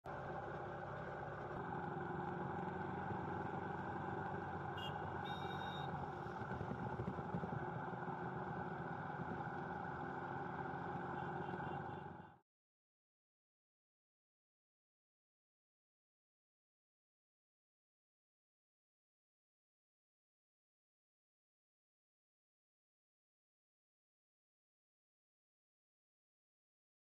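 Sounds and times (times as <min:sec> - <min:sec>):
road traffic: 0:00.1 - 0:12.4.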